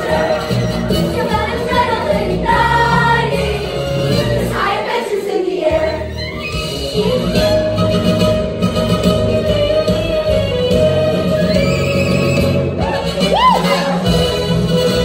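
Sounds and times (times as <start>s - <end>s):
young ensemble singing: 0.0s - 6.3s.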